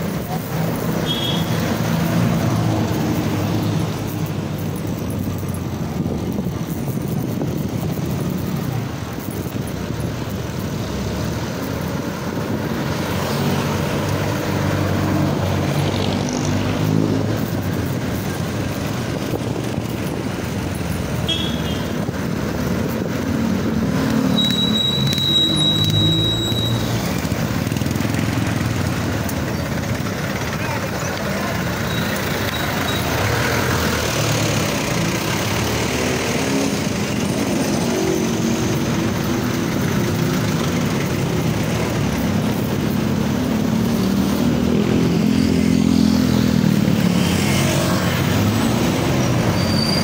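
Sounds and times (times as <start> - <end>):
motorcycle engines passing: 0.0 - 50.0
high beeps: 24.3 - 26.9.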